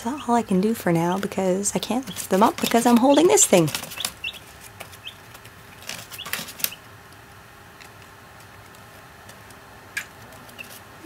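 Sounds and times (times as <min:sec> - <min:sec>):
chicks peeping: 0:01.2 - 0:06.9, 0:10.4 - 0:10.8
light clicks of chicks moving: 0:02.0 - 0:10.8.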